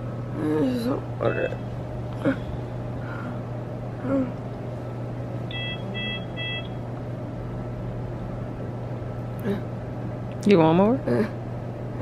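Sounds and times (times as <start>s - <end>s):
steady low hum: 0.0s - 12.0s
medical equipment beeping: 1.2s - 1.7s, 5.5s - 6.8s.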